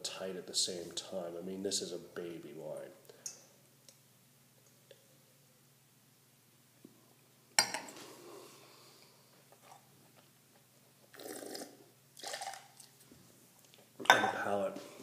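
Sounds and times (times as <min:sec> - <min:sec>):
spitting into metal cup: 0:11.1 - 0:12.9
wine slurping: 0:11.1 - 0:13.0.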